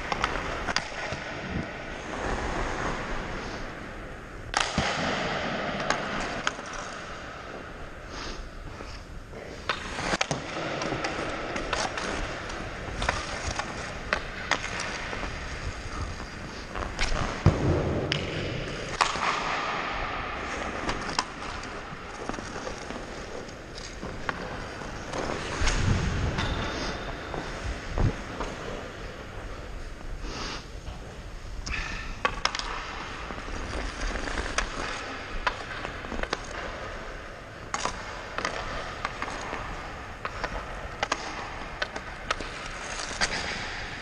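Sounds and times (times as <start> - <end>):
stick clacking on puck: 0.0 - 1.6, 5.8 - 7.5, 9.6 - 19.8, 20.5 - 29.0, 31.6 - 43.9
puck striking hard surfaces: 0.0 - 3.7, 4.5 - 7.8, 9.6 - 29.0, 31.7 - 44.0
skates scraping on ice: 0.0 - 44.0.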